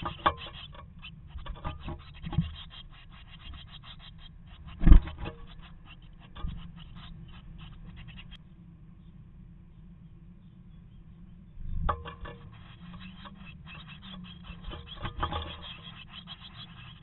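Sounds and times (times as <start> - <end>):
bird scratching and rustling in nest: 0.0 - 8.4, 11.9 - 17.0
faint low hum: 0.0 - 17.0.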